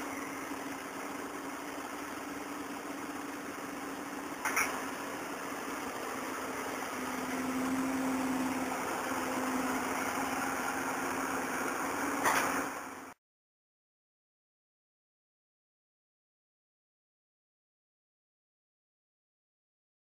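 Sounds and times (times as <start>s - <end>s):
excavator diesel engine running: 0.0s - 13.1s.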